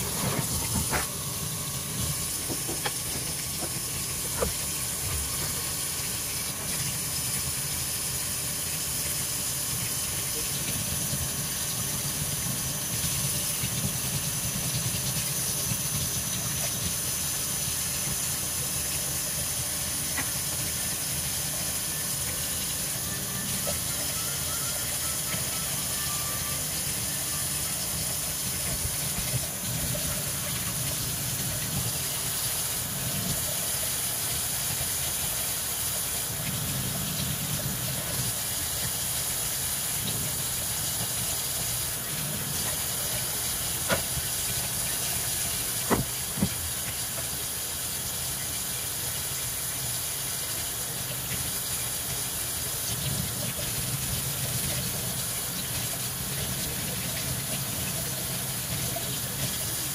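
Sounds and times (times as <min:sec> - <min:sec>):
faucet water splashing into sink: 0:00.0 - 0:59.9.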